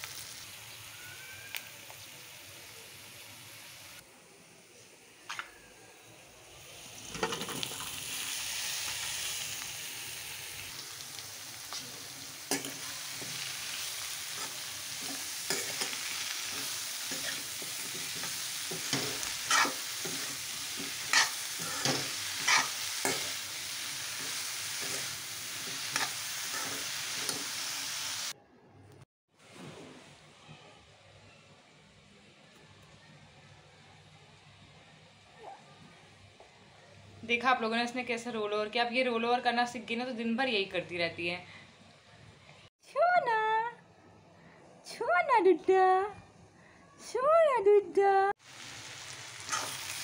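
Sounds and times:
vegetables sizzling in hot oil: 0.0s - 28.4s, 48.4s - 50.0s
metal spatula scraping and knocking pan: 16.6s - 23.4s.

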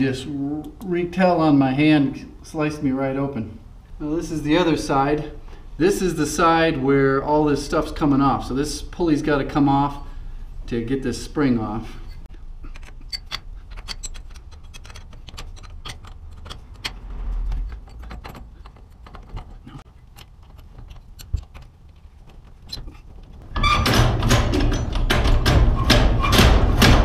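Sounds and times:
metal scraping and rattling: 12.0s - 27.0s
wrench clicking on metal: 12.7s - 17.0s.

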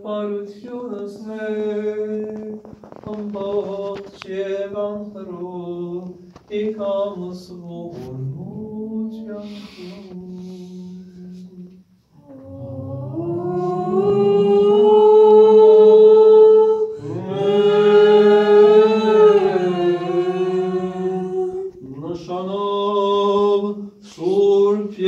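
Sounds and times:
man chanting a hymn: 0.0s - 15.7s, 21.6s - 25.0s.

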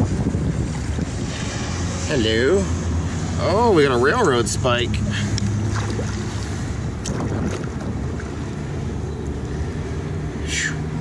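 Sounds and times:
low wind rumble on microphone: 0.0s - 11.0s
water lapping against hull: 5.0s - 8.8s.

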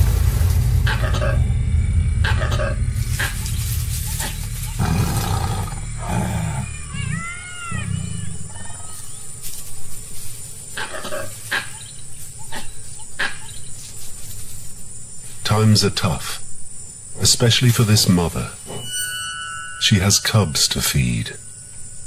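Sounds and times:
tiger growling and roaring: 4.1s - 8.7s
high-pitched cry: 6.4s - 9.1s.

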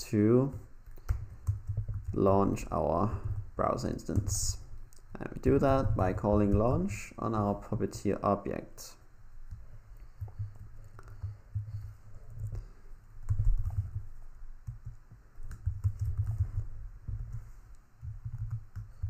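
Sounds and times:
typing on computer keyboard: 0.8s - 2.3s, 9.5s - 17.4s, 18.0s - 19.0s.

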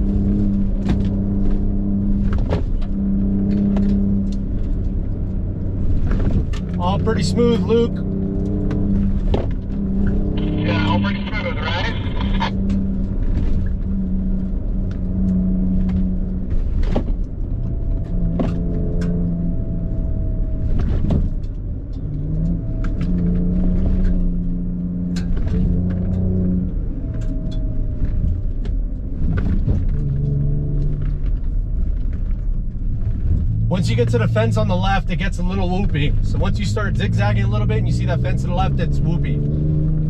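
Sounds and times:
knocks and rattles of truck: 0.0s - 5.1s, 5.7s - 6.8s, 8.6s - 9.8s, 15.8s - 19.1s, 20.5s - 22.0s, 27.1s - 33.6s
truck engine revving: 5.7s - 12.9s, 33.4s - 40.0s.

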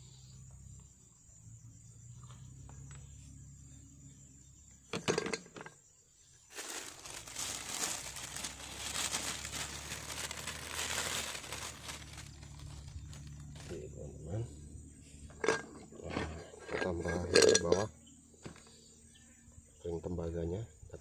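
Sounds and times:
plastic bag crinkling: 6.5s - 13.8s.

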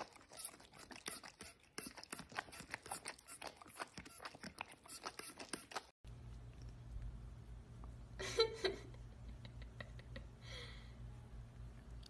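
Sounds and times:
dog licking plastic nozzle: 0.0s - 5.9s.

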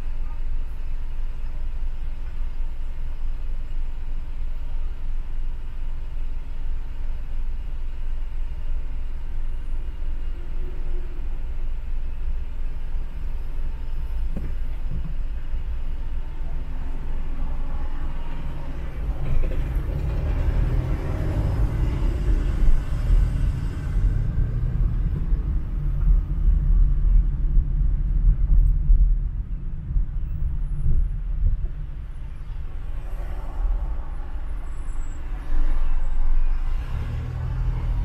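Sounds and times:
car engine and tyres rumbling: 0.0s - 38.0s
traffic passing: 9.2s - 38.0s.

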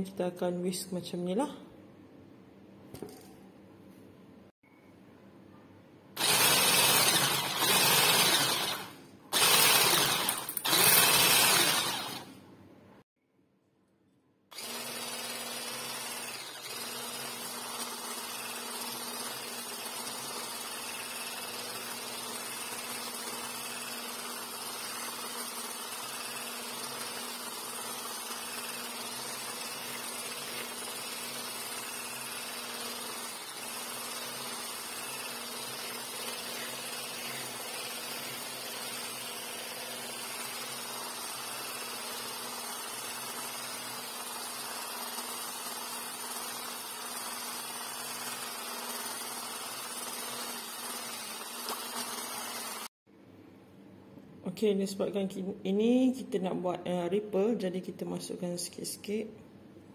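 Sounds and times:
electric whisk in metal bowl: 6.2s - 12.4s, 14.5s - 52.9s.

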